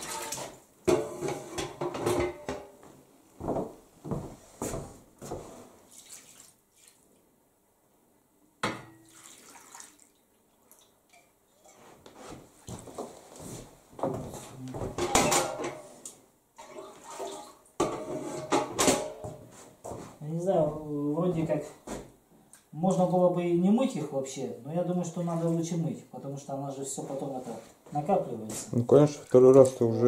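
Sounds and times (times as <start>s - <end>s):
water splashing onto metal trays: 5.9s - 7.2s, 8.8s - 11.3s, 16.6s - 18.0s, 28.9s - 30.0s.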